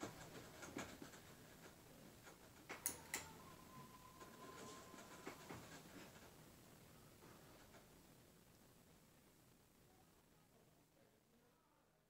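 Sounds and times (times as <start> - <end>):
faint high tone: 2.9 - 5.5.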